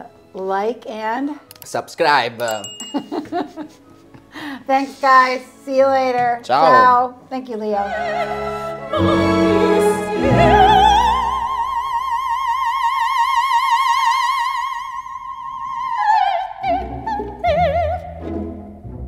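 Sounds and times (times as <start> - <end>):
low orchestral instruments: 6.4 - 14.7, 15.6 - 19.0
operatic singing voice: 7.9 - 18.1.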